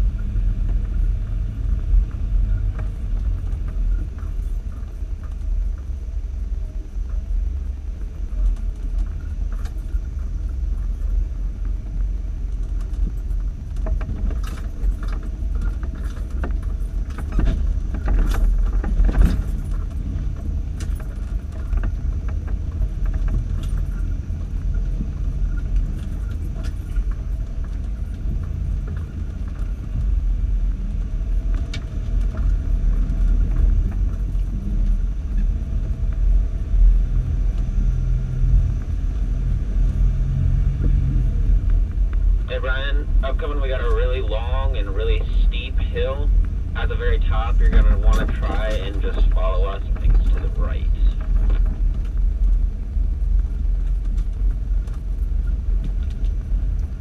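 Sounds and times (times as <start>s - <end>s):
off-road vehicle engine rumble: 0.0s - 57.0s
vehicle body rattling and knocking: 12.6s - 36.6s.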